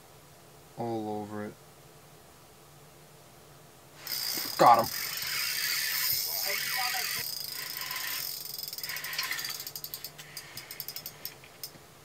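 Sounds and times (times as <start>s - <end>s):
reel ratcheting clicks: 4.0s - 11.8s.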